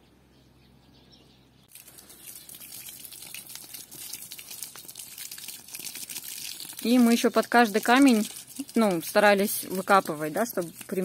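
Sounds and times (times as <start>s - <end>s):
hose water splashing on stones: 1.7s - 11.0s.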